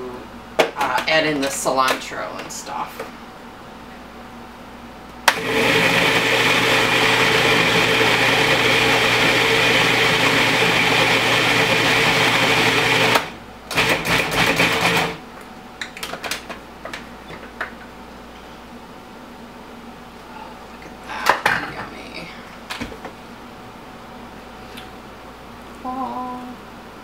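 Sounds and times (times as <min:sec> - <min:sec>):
food processor motor running: 0:05.3 - 0:15.2.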